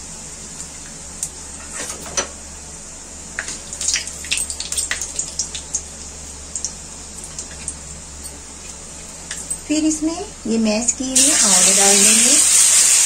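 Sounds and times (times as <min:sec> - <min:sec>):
seeds crackling in hot oil: 0:03.3 - 0:09.3, 0:11.1 - 0:13.0.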